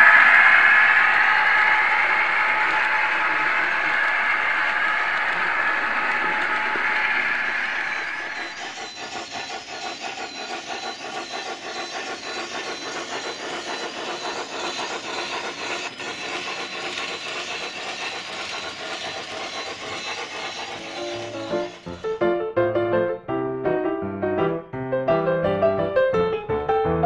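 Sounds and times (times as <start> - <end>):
model steam locomotive chuffing: 0.0 - 23.8
model train wagons rolling: 1.5 - 22.1.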